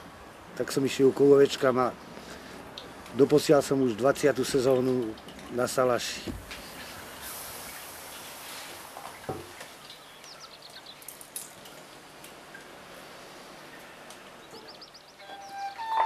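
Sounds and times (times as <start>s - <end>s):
dripping: 2.1s - 15.1s
high chirps: 14.5s - 16.0s.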